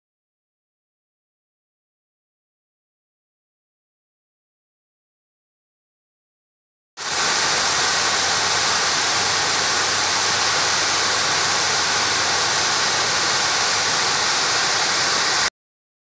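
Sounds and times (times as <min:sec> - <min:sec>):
water rushing over a dam: 0:07.0 - 0:15.5.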